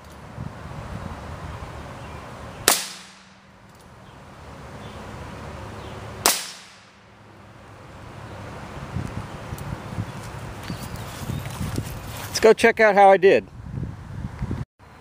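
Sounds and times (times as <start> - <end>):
revolver shots: 2.6 - 3.4, 6.2 - 7.1.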